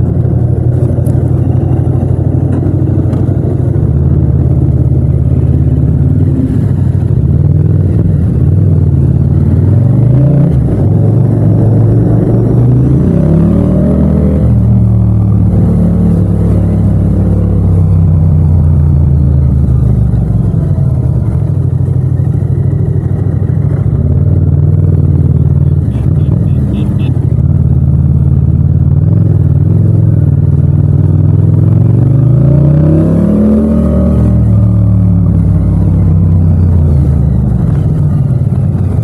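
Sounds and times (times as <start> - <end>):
motorcycle engine running: 0.0 - 32.4, 33.0 - 39.0.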